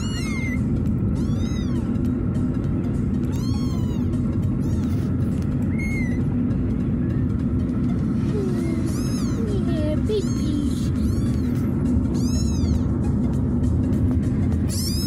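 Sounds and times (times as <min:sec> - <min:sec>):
kittens mewing: 0:00.0 - 0:02.2, 0:03.2 - 0:06.4, 0:07.8 - 0:13.4, 0:14.6 - 0:15.0
steady low rumble: 0:00.0 - 0:15.0.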